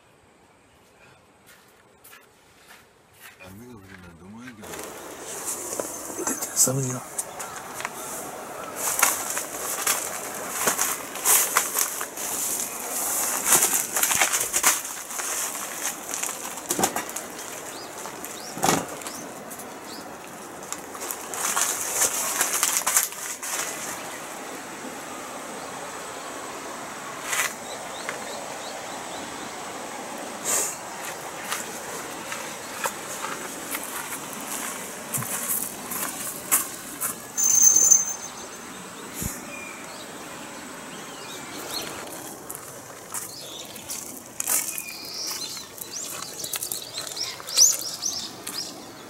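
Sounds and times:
plastic tarp rustling and crinkling: 4.6 - 24.3, 30.9 - 37.2.

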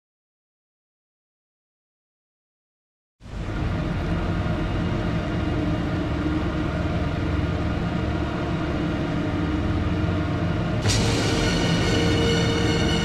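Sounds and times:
low rumbling drone soundtrack: 3.2 - 13.0.

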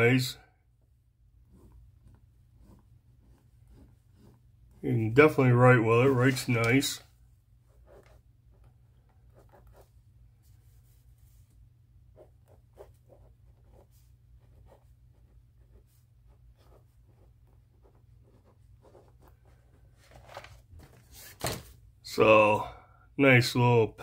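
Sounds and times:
ballpoint pen scratching on paper: 1.4 - 4.8, 7.7 - 10.0, 12.1 - 19.8.

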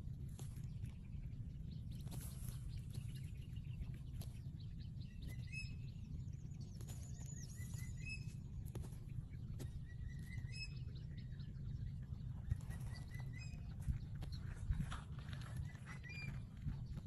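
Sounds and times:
faint snaps in dry grass: 0.0 - 5.5, 6.6 - 10.5
low outdoor rumble: 0.0 - 17.0
small bird chirping: 0.3 - 17.0.

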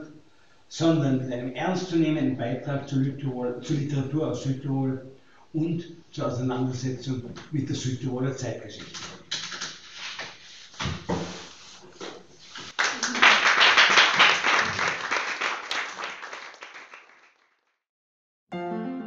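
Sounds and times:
papers knocking on lectern: 10.8 - 11.4
audience applauding: 12.7 - 17.6.

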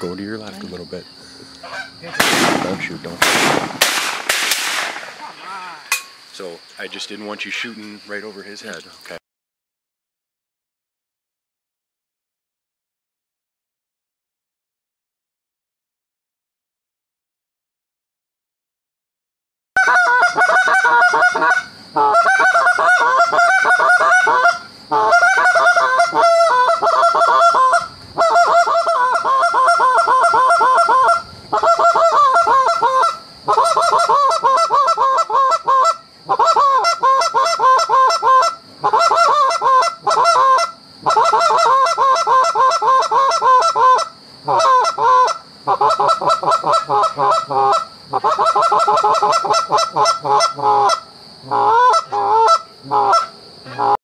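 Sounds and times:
goose call honks and clucks: 1.6 - 2.3, 19.8 - 54.0.

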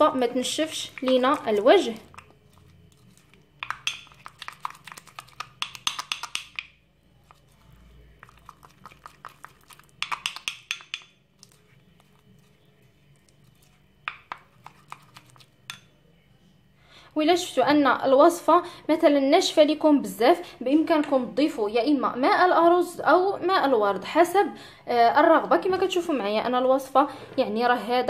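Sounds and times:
spoon stirring paste in glass bowl: 0.0 - 16.0.

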